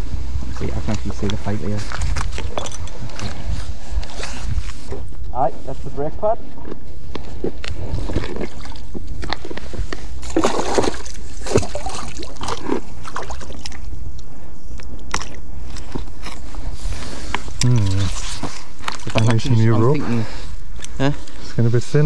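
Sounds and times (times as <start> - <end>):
steady low rumble: 0.0 - 22.0
water sloshing and splashing: 7.9 - 14.0.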